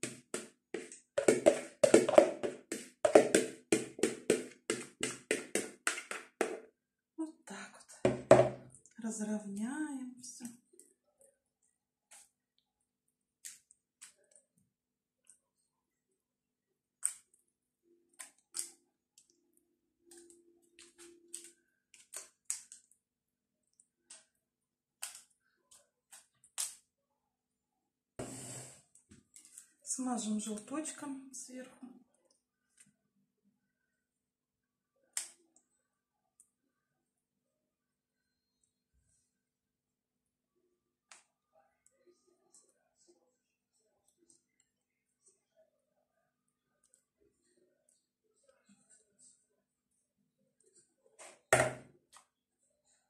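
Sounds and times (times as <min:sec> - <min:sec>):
spoon knocking plastic bowl: 0:00.0 - 0:06.7, 0:08.1 - 0:08.6, 0:51.6 - 0:51.9.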